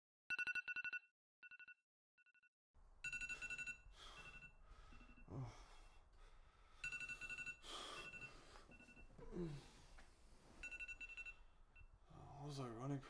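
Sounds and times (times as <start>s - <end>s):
electronic ringing tone beeps: 0.3s - 5.2s, 6.8s - 9.1s, 10.6s - 11.9s
man breathing out heavily: 3.9s - 10.0s.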